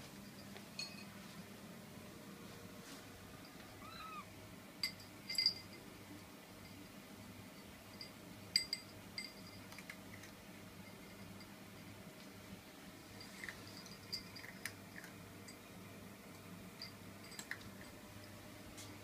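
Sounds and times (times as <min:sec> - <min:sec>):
cat meowing faintly: 0:03.7 - 0:04.3.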